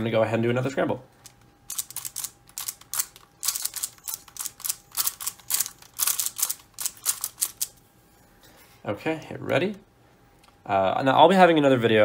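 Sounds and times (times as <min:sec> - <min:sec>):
puzzle cube plastic clicks: 0:01.2 - 0:07.7.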